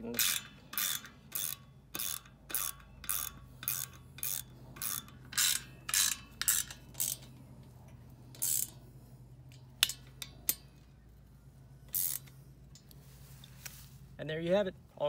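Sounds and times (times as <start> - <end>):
socket ratchet clicking: 0.0 - 8.8, 9.4 - 10.7, 11.9 - 13.0.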